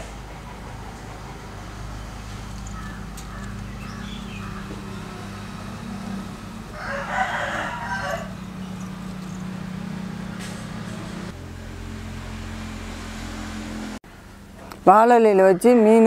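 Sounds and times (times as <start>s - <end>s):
steady low hum: 0.0s - 15.0s
rooster crowing: 2.7s - 10.4s.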